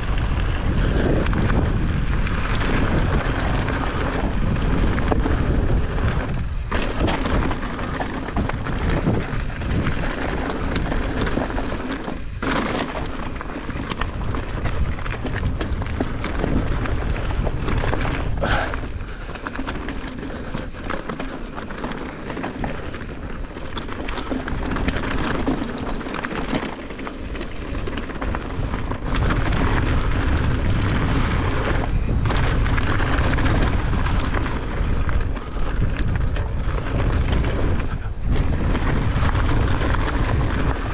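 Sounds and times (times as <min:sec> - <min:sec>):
bike rattling: 0:00.0 - 0:40.9
wind rumble on microphone: 0:00.0 - 0:40.9
tyres crunching over stones: 0:06.7 - 0:34.8.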